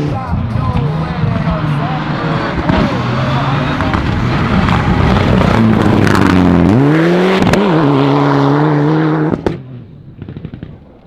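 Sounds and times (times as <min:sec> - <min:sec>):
rally car engine revving: 0:00.0 - 0:10.8.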